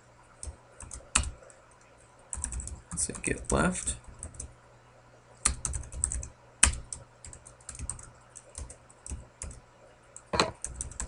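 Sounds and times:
typing on keyboard: 0.4s - 1.3s, 2.3s - 4.5s, 5.4s - 9.6s, 10.6s - 11.0s.

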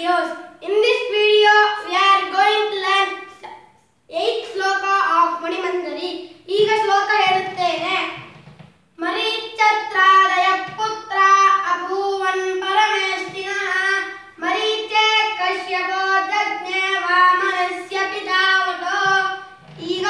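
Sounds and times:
boy chanting: 0.0s - 3.5s, 4.1s - 8.3s, 9.0s - 20.0s.

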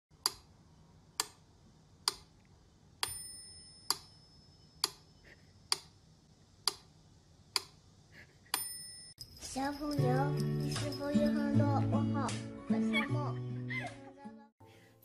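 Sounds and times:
short bell-like ring: 3.1s - 4.8s.

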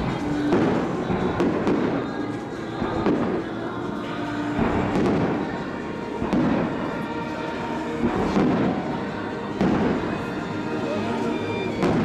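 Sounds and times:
fireworks booming: 0.0s - 3.5s, 4.3s - 10.7s, 11.5s - 12.0s
faint music from loudspeakers: 0.0s - 12.0s.

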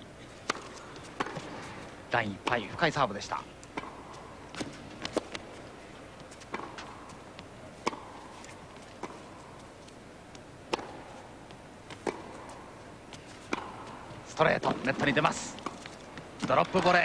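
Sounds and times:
racket striking ball: 0.4s - 1.7s, 2.4s - 5.6s, 6.4s - 8.3s, 8.9s - 9.6s, 10.6s - 17.0s
tennis ball bouncing on court: 0.4s - 17.0s.

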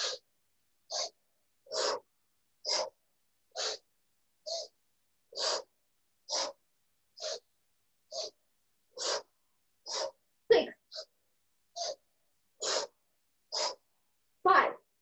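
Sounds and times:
woman breathing forcefully: 0.0s - 0.2s.

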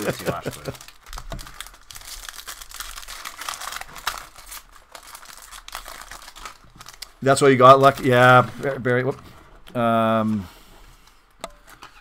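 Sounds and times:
foil wrapper crinkling and tearing: 0.0s - 9.1s.

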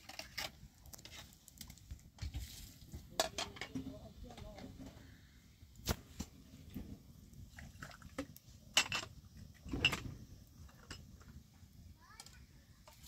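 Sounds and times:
dishes knocking and clinking: 3.2s - 3.9s, 8.7s - 9.1s.

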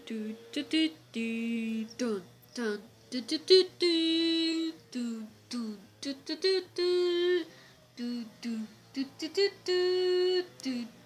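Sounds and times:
person humming a tune: 0.0s - 11.0s.

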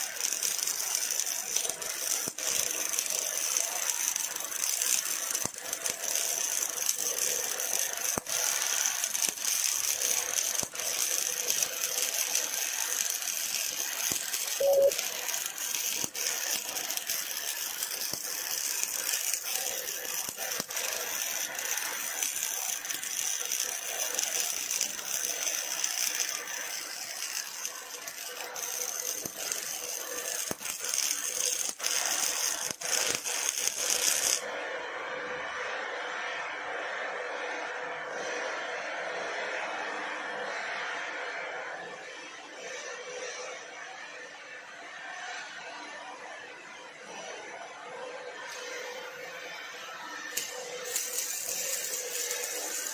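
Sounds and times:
welding arc crackling: 0.0s - 34.5s, 48.4s - 52.9s
short tone: 14.6s - 15.0s.

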